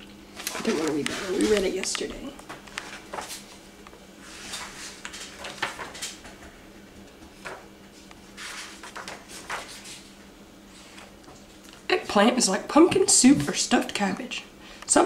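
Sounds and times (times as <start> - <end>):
book pages turning: 8.0 - 10.1.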